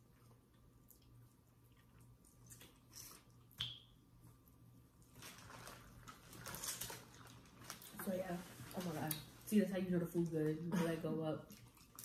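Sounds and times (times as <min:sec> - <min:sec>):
chewing: 0:00.0 - 0:03.6, 0:11.5 - 0:12.0
faint low hum: 0:00.0 - 0:12.0
plastic bag rustling: 0:05.0 - 0:09.5.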